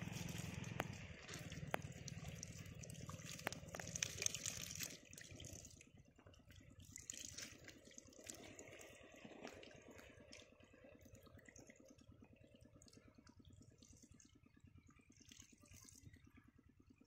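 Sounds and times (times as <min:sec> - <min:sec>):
small splashes and clicks: 0:00.0 - 0:14.4, 0:15.0 - 0:16.2
water trickling: 0:00.0 - 0:16.4.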